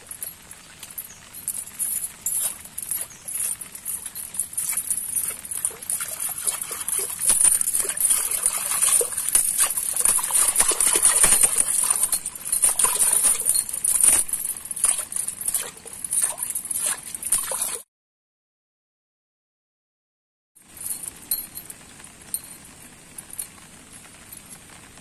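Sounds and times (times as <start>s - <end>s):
muddy water splashing: 0.0s - 17.8s.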